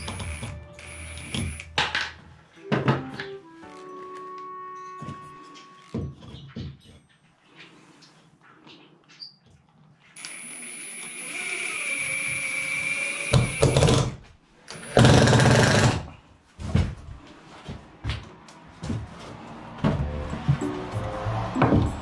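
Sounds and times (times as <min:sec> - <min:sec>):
power tool running: 0:00.0 - 0:01.8, 0:10.2 - 0:14.1
knocks and clicks: 0:21.6 - 0:22.0.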